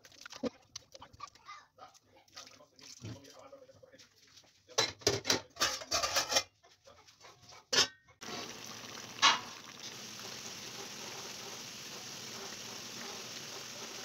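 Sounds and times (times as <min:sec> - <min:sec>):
pot bubbling on stove: 0:08.2 - 0:14.0.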